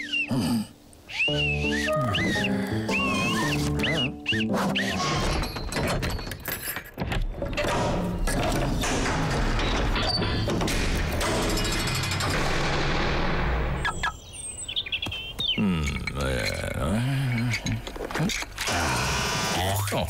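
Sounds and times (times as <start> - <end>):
clattering cartoon soundtrack: 2.0 - 13.6.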